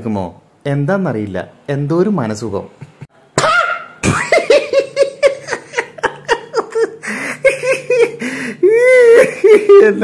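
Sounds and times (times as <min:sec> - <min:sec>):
man laughing hard: 0:02.9 - 0:10.0.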